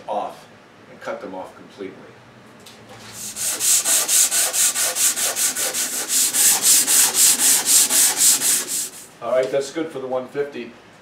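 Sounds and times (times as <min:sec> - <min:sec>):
sandpaper scratching on wood: 0:03.2 - 0:09.1.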